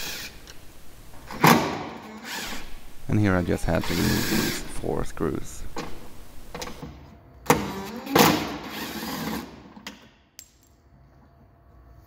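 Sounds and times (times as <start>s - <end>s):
drill-driver burst: 8.6s - 9.5s.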